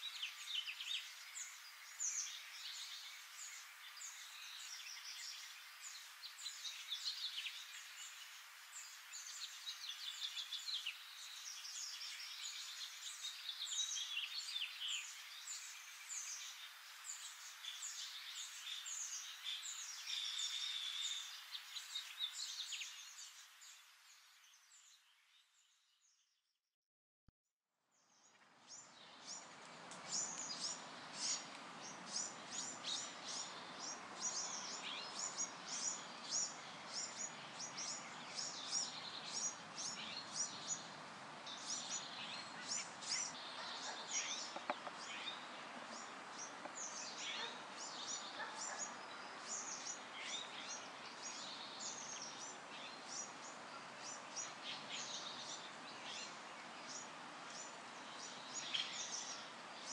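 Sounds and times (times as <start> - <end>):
steady background hiss: 0.0 - 25.3, 28.2 - 59.9
birds chirping: 30.0 - 59.9.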